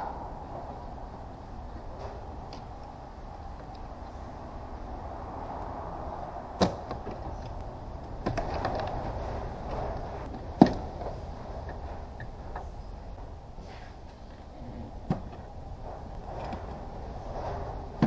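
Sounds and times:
plastic clicking and scraping: 6.9 - 10.9.

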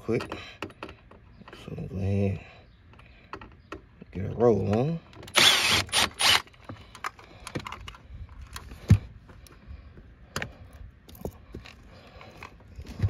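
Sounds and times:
small parts and tools rattling: 4.6 - 9.6.

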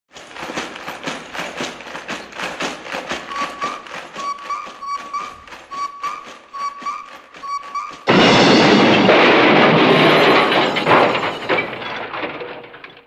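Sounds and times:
cartoon hoofbeat taps: 2.1 - 8.1
short high squeaks: 3.2 - 8.1.

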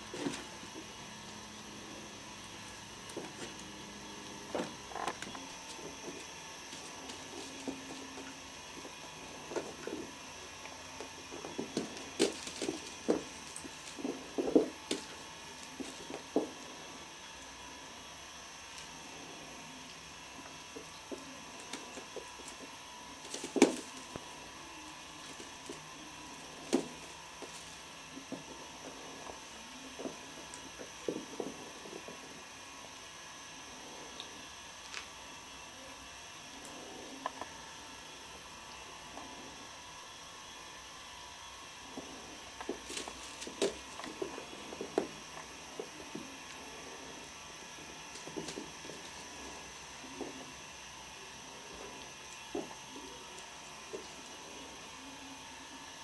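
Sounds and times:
steady background hiss: 0.0 - 56.0
kittens knocking on cardboard: 26.7 - 27.6.

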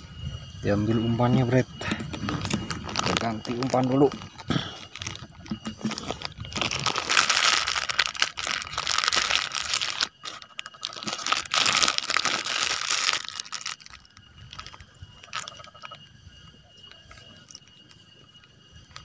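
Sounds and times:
crinkling and rustling handling noise: 1.2 - 16.0.

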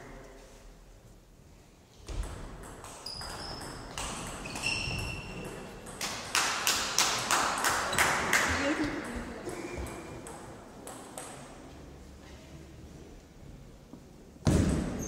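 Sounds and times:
shoes squeaking on hardwood floor: 3.0 - 5.7.

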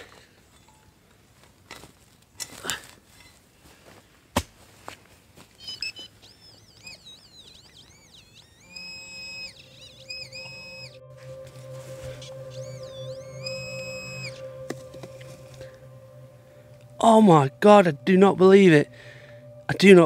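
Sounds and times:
electronic warbling tone: 5.6 - 20.0.

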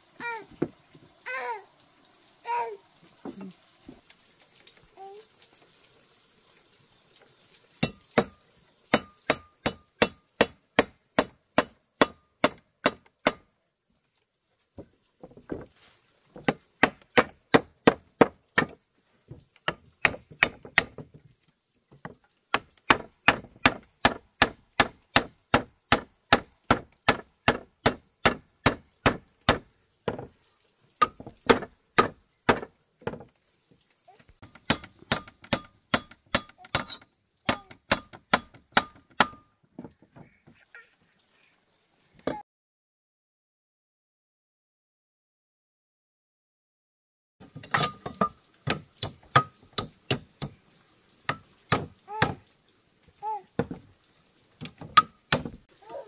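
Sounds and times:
hand tool striking: 7.8 - 13.4, 16.4 - 18.8, 19.6 - 21.0, 22.5 - 30.3, 31.0 - 33.2, 34.4 - 39.5, 47.6 - 50.6, 51.3 - 52.4, 54.6 - 55.6.

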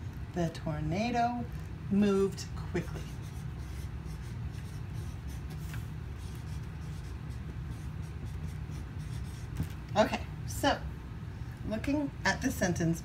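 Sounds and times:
steady low hum: 0.0 - 13.0
marker scratching on paper: 2.7 - 9.7.

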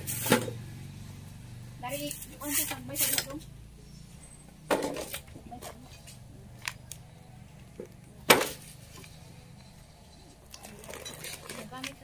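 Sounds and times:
broom scraping over dirt: 0.0 - 0.5, 2.1 - 3.3.

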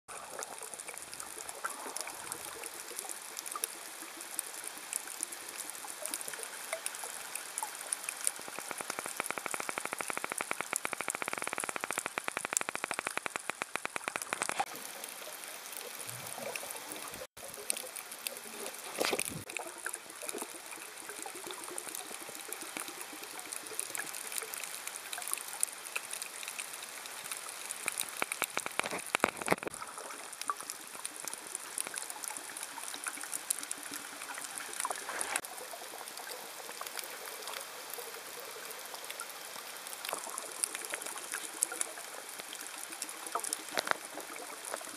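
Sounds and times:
water rushing: 6.4 - 21.4.

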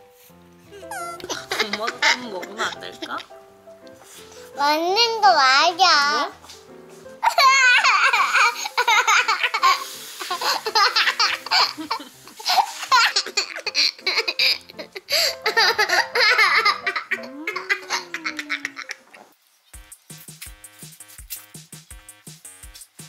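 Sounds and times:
young children laughing: 0.7 - 3.2, 7.2 - 19.4.

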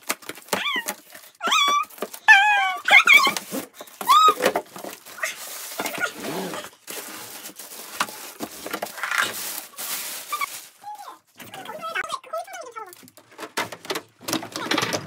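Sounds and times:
plastic crinkling: 0.0 - 12.0
cardboard and plastic rustling: 0.0 - 15.0
dog whimpering: 0.6 - 3.4.

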